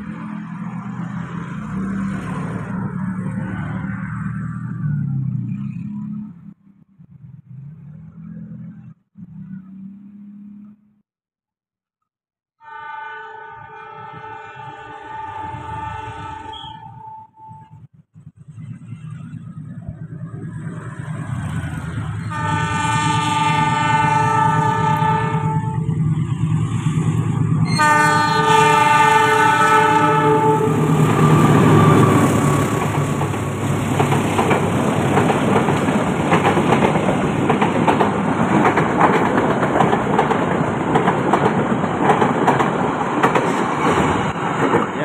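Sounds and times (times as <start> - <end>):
train horn blasts: 12.6 - 17.8, 22.2 - 26.0, 27.6 - 33.2
locomotive engine hum: 15.0 - 45.0
wheels clattering over rail joints: 31.0 - 45.0.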